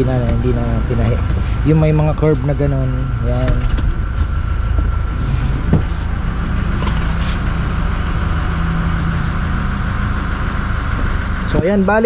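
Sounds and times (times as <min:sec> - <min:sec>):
vehicle engine idling: 0:00.0 - 0:12.0.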